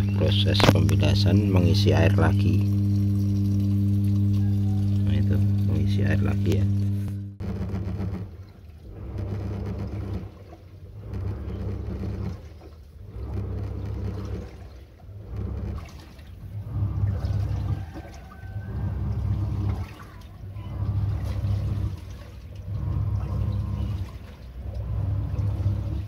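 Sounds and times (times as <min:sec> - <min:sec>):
washing machine motor humming: 0:00.0 - 0:26.0
water sloshing and splashing: 0:07.8 - 0:26.0.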